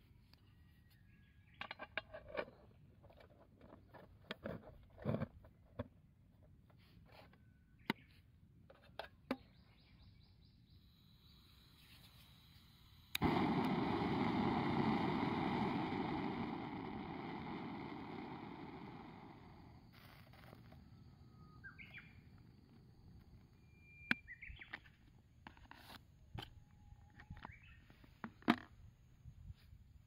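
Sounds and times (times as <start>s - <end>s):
gas stove hissing: 10.9s - 23.4s
gas stove igniting click: 13.1s - 19.7s.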